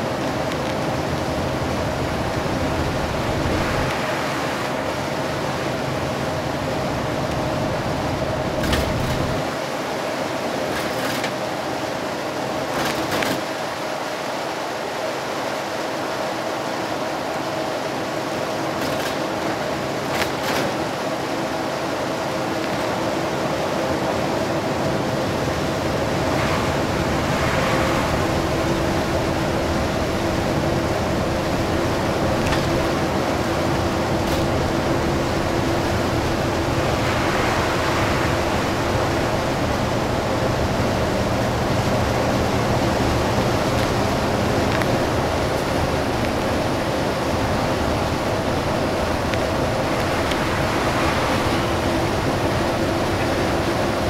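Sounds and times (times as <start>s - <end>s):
diesel engine drone: 0.0s - 54.0s
rain and tyre spray hissing: 0.0s - 54.0s
swishes of spray: 25.6s - 54.0s.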